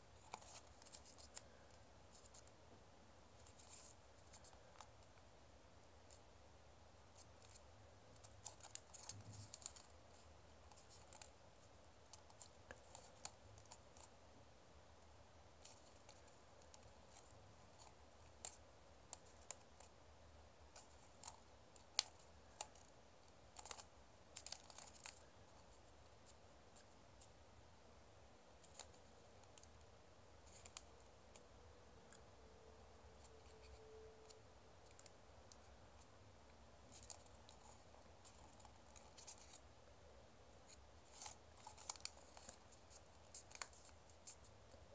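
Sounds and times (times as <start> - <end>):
paper crinkling while folded: 0.1 - 2.6, 7.2 - 14.1, 20.7 - 27.3, 36.8 - 39.8, 40.6 - 44.9.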